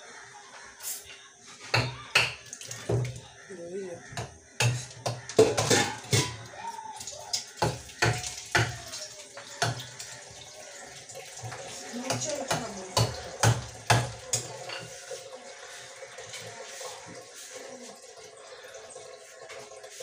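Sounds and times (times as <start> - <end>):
knife chopping hard pumpkin: 12.5 - 14.2.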